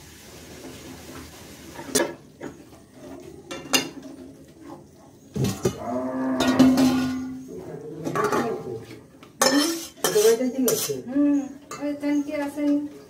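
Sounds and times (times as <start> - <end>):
spatula scraping metal pan: 5.5 - 11.1.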